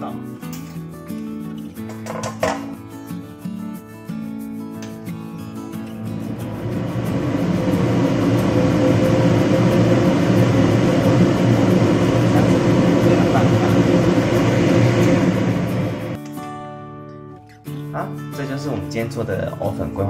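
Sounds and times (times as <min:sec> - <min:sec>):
steady hum: 0:05.8 - 0:16.2
water boiling hard: 0:06.0 - 0:16.2.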